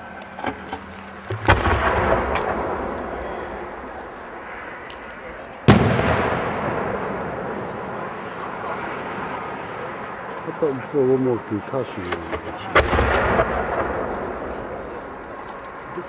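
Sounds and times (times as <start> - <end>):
firework mortar lift thump: 0.4 - 4.4, 5.7 - 7.8, 12.1 - 15.7
firework shell boom: 1.3 - 3.6
echo of bang: 1.3 - 9.9, 12.1 - 15.3.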